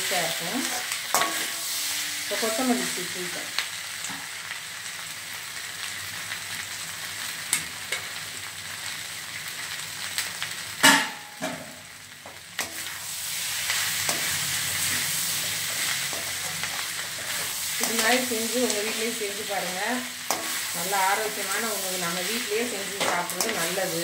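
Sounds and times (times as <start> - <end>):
vegetables sizzling in a pan: 0.0 - 24.0
metal ladle scraping a pan: 0.6 - 2.7, 13.9 - 18.9.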